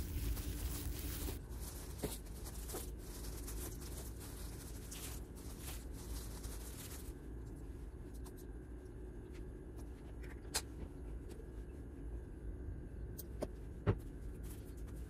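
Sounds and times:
plastic gloves crinkling: 0:00.0 - 0:08.3.

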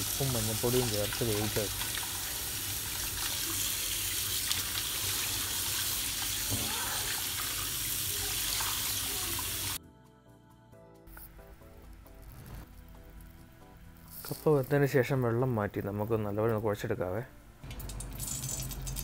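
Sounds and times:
tap water running and splashing: 0:00.0 - 0:09.8
faint music: 0:08.1 - 0:19.0.

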